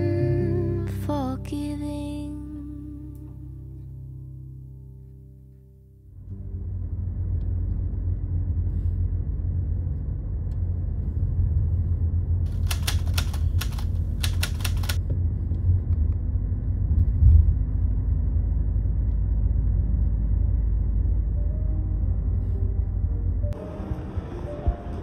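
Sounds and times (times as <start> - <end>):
low rumble: 0.0 - 25.0
typewriter key clicks: 12.5 - 15.0.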